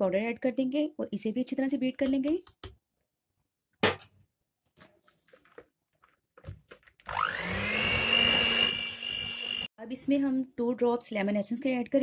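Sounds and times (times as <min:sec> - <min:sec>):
electric hand mixer whine: 0:07.0 - 0:09.7.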